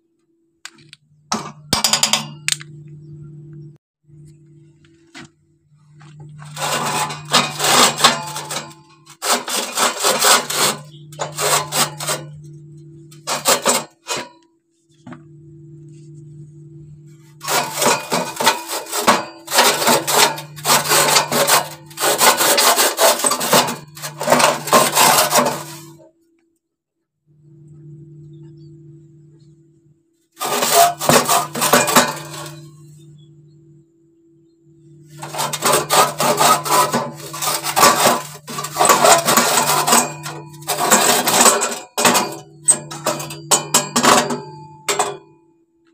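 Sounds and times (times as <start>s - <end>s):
metal scraping carbon deposits: 5.7s - 14.4s, 16.0s - 26.1s, 30.4s - 33.5s, 34.8s - 45.3s
faint low hum: 27.3s - 30.4s.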